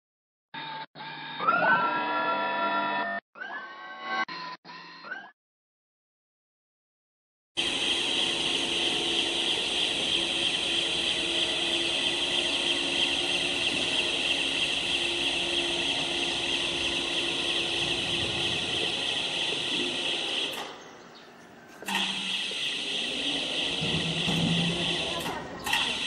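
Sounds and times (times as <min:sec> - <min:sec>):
rail cart high-pitched running: 0:07.6 - 0:26.0.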